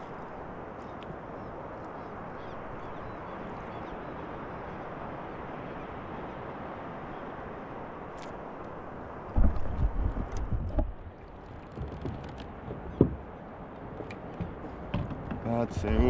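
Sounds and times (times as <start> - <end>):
water rushing around kayak: 0.0 - 16.0
wind on microphone: 8.9 - 13.5.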